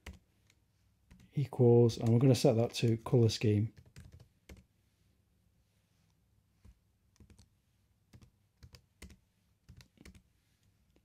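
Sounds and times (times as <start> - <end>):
computer keyboard keystrokes: 0.0 - 1.3, 2.0 - 3.0, 3.8 - 4.6, 6.6 - 7.5, 8.1 - 10.2.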